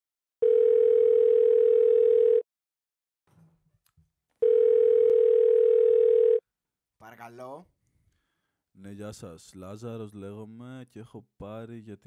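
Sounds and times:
telephone ringback tone: 0:00.4 - 0:02.4, 0:04.4 - 0:06.4.

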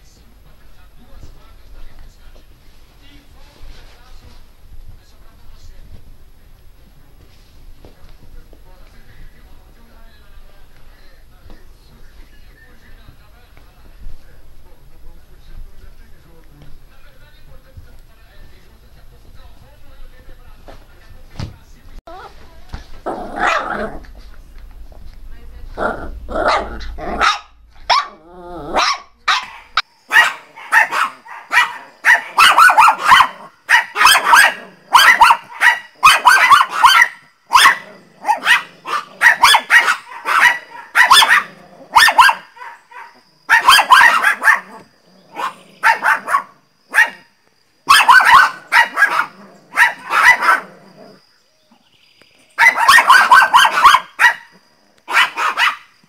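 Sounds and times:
small dogs barking: 0:23.0 - 0:24.2, 0:25.8 - 0:51.2, 0:52.5 - 0:56.0.

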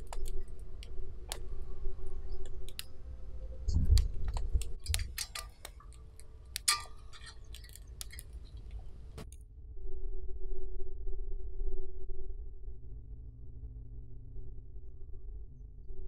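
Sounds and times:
campfire crackling: 0:00.0 - 0:09.2
faint steady hum: 0:00.0 - 0:16.0
low rumble: 0:00.0 - 0:16.0
metal pot clinking: 0:06.6 - 0:08.6.

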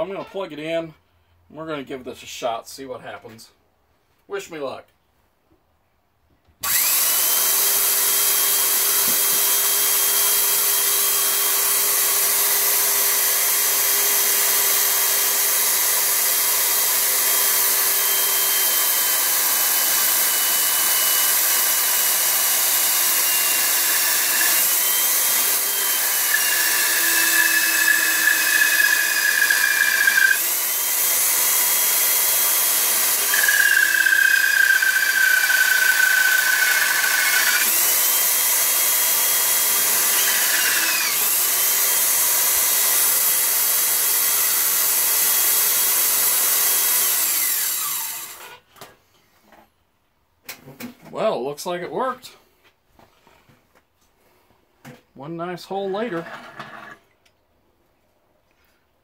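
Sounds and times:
electric drill whining: 0:06.6 - 0:48.6.

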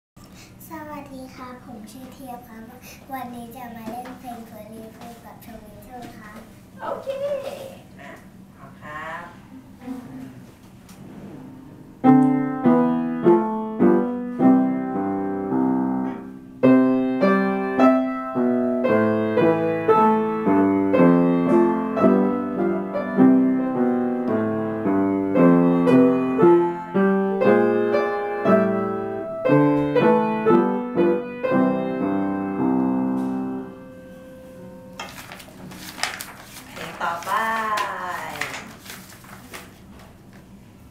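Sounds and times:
piano duet: 0:11.1 - 0:36.3.

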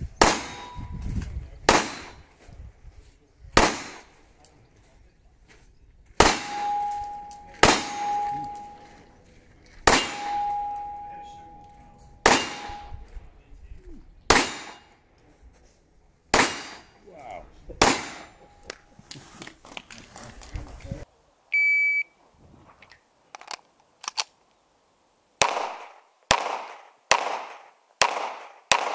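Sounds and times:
pistol shots: 0:00.2 - 0:00.8, 0:01.7 - 0:02.2, 0:03.6 - 0:04.2, 0:06.2 - 0:09.0, 0:09.8 - 0:13.2, 0:14.3 - 0:14.9, 0:16.3 - 0:17.0, 0:17.8 - 0:18.8, 0:25.4 - 0:28.9
steel target ringing: 0:00.2 - 0:01.1, 0:06.2 - 0:09.2, 0:09.9 - 0:13.3, 0:16.4 - 0:17.0, 0:17.8 - 0:18.7.

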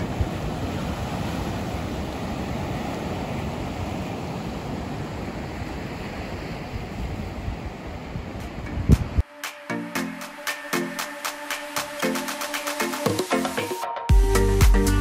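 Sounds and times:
wind rumble on microphone: 0:00.0 - 0:09.2
ocean waves breaking: 0:00.0 - 0:13.9.

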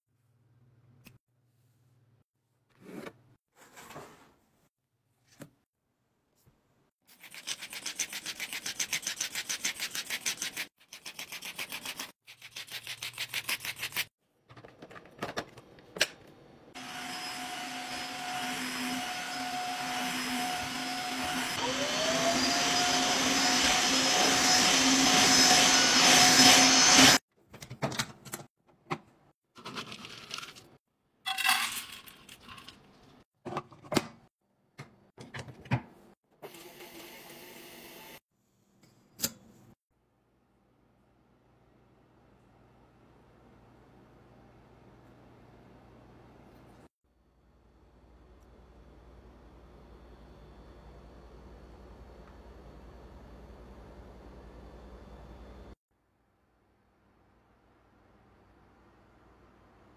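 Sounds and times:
vacuum cleaner running: 0:16.8 - 0:27.2, 0:36.4 - 0:38.2
kibble poured into metal bowl: 0:31.3 - 0:32.9.

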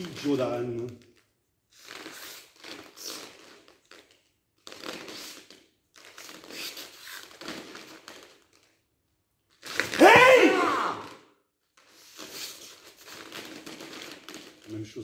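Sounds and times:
uniforms rustling and snapping: 0:00.0 - 0:15.0
person shouting: 0:10.0 - 0:11.2.

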